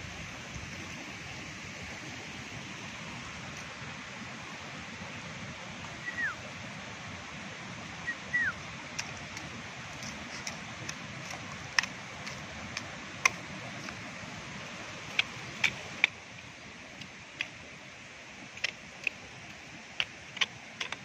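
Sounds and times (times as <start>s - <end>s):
rushing background noise: 0.0s - 21.0s
bird whistled calls: 6.0s - 6.4s, 8.0s - 8.6s.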